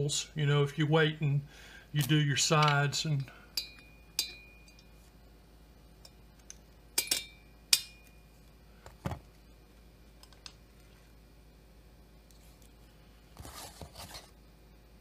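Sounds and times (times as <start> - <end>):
tool set down on bench: 8.9 - 9.2.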